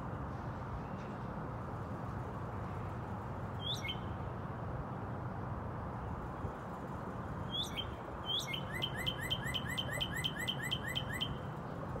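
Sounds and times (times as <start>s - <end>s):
cardinal singing whistles and chirps: 3.6s - 4.1s, 7.5s - 11.4s.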